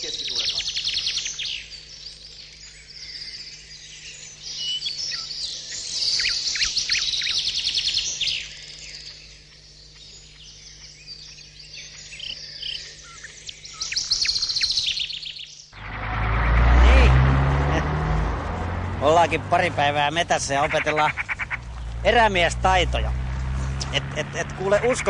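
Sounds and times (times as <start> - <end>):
songbirds chirping and trilling: 0.0 - 25.0.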